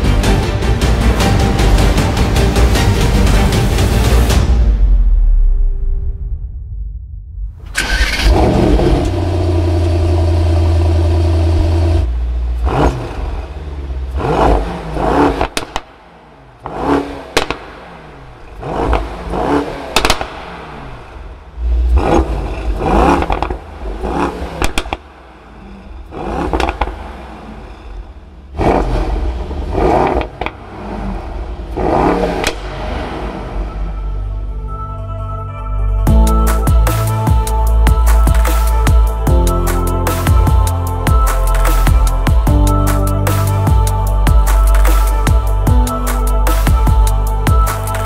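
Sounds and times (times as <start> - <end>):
car engine revving: 7.6 - 34.6
exhaust pops: 16.6 - 17.8, 19.9 - 21.2, 21.9 - 25.1, 26.2 - 27.1, 29.8 - 30.6.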